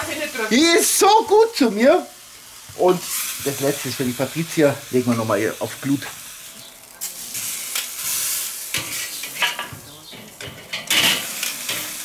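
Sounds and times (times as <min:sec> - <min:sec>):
steak sizzling on a grill: 0:00.0 - 0:12.0.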